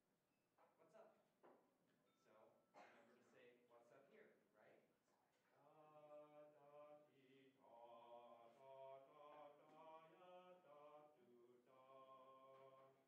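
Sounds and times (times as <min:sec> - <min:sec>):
man softly singing: 0:05.3 - 0:13.0.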